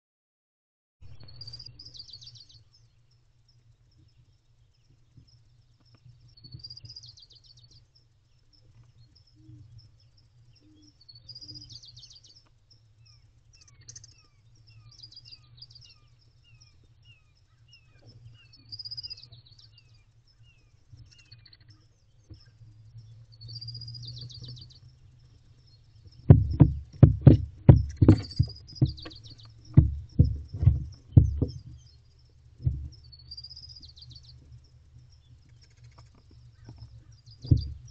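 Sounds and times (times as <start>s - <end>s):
songbirds singing: 1.0s - 37.9s
steady low hum: 1.0s - 37.9s
owlets thumping on nest box floor: 26.2s - 31.9s, 32.6s - 33.1s, 36.6s - 37.9s.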